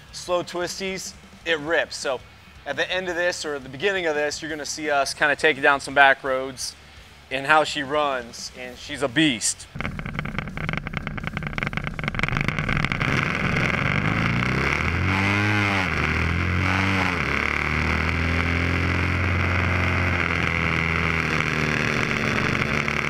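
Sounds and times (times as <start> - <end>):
motorcycle accelerating at full throttle: 9.8 - 23.0.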